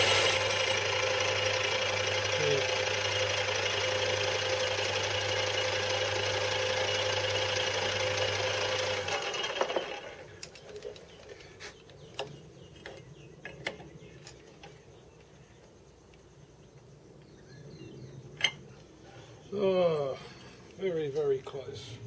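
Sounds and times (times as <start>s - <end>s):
lathe motor hum and whine: 0.0s - 10.2s.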